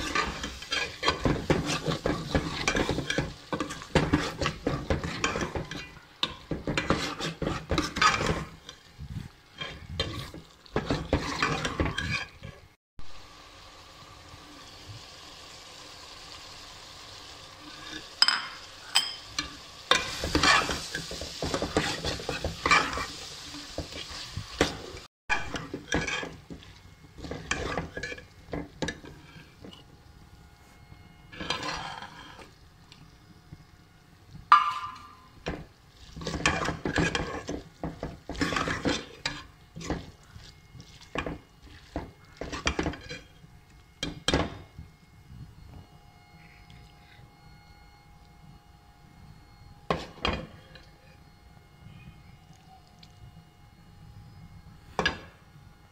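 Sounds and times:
metal spoon scraping a pot: 0.0 - 12.7, 17.6 - 29.9, 30.8 - 32.6, 34.5 - 44.2
vegetables sizzling in a pot: 0.0 - 44.8.

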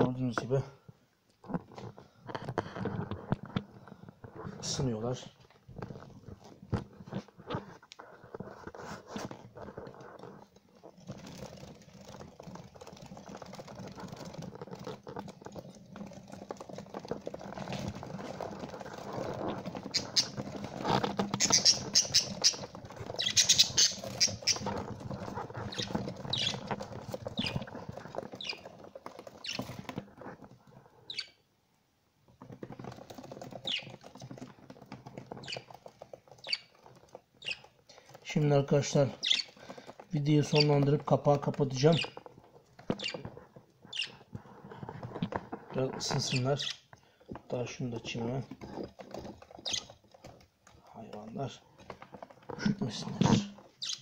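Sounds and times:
rustling: 1.4 - 31.5, 32.1 - 54.0
budgerigars chirping: 19.9 - 20.4, 21.4 - 24.7, 25.7 - 26.6, 31.1 - 31.4, 36.4 - 36.7, 39.2 - 39.6, 43.9 - 44.2, 46.2 - 46.8, 49.6 - 49.9, 53.2 - 54.0.

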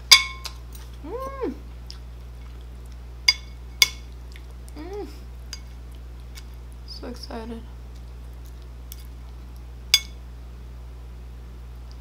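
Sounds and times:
person humming while chewing: 1.0 - 3.0, 4.3 - 5.3.

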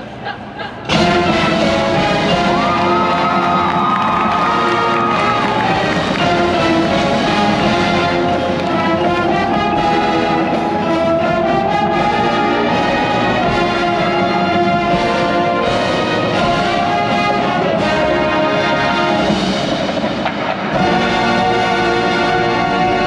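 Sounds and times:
marching band playing: 0.9 - 23.0.

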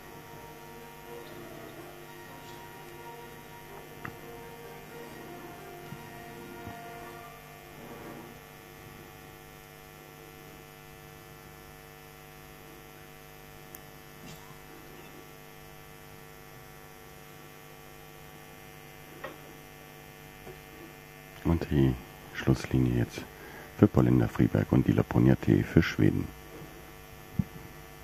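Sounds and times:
faint mains hum: 0.0 - 28.0.

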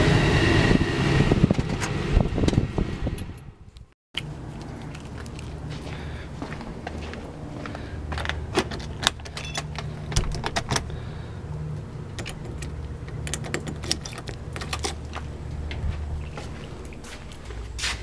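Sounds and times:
steady low hum: 0.0 - 18.0
keys jangling in a lock: 8.2 - 10.9, 12.1 - 15.2.

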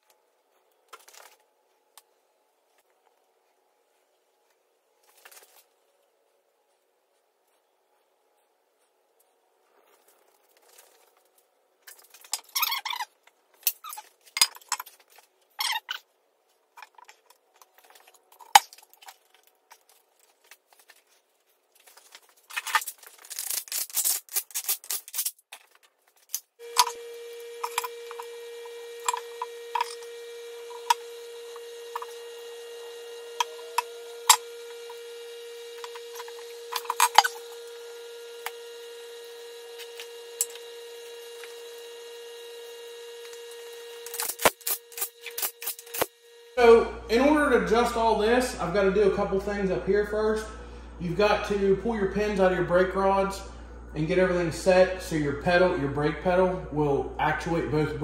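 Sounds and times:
steady hum: 26.6 - 58.0.

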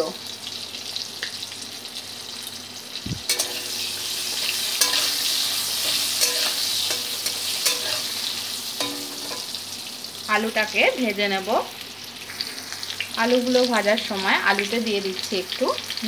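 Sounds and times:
food sizzling in hot oil: 0.0 - 16.0
metal spatula scraping pan: 3.3 - 9.5.

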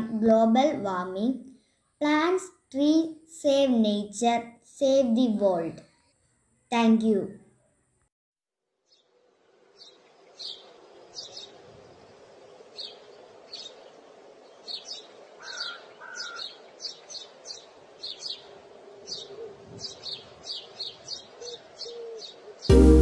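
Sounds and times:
songbirds chirping: 0.0 - 2.8, 3.8 - 8.1, 8.8 - 23.0.

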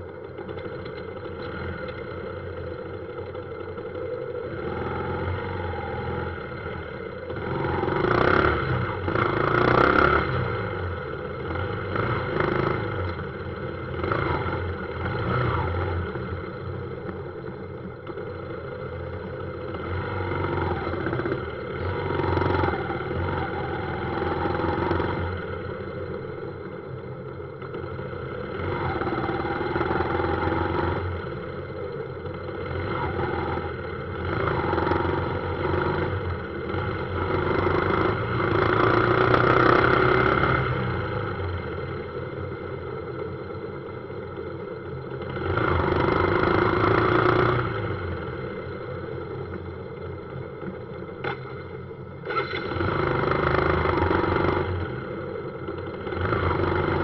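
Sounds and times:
street traffic: 0.0 - 57.0
motorbike engine revving: 4.4 - 17.1, 50.6 - 57.0.

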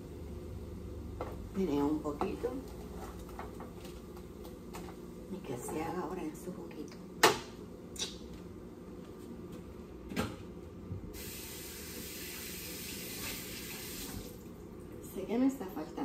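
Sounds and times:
kitchen tap running: 11.2 - 14.5.

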